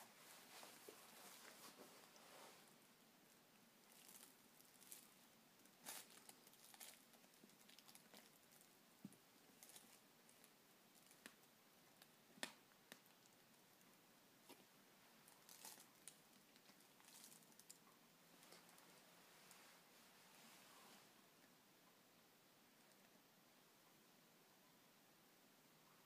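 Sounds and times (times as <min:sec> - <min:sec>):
faint rustles: 0:00.0 - 0:02.9.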